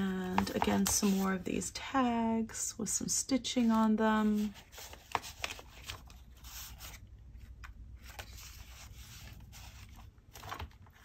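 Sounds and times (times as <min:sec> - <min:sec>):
paper rustling and scraping: 0:00.2 - 0:01.4, 0:03.7 - 0:11.0.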